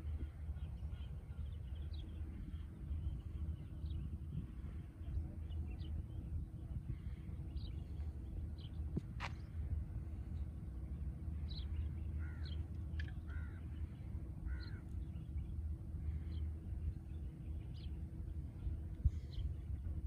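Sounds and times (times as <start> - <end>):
steady low rumble: 0.0 - 20.0
bird calling: 11.6 - 14.9.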